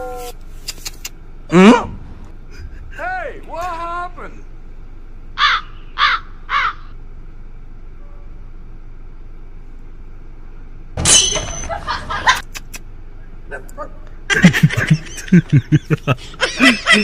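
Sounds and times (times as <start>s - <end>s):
crow cawing: 5.4s - 7.0s.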